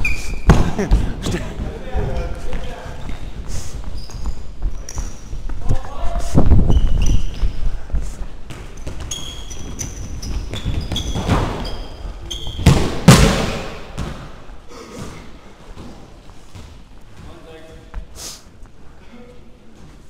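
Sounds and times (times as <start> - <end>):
trainers squeaking on floor: 0.0 - 0.6, 2.0 - 5.5, 6.6 - 7.9, 8.5 - 12.9
ball thuds: 12.6 - 14.4.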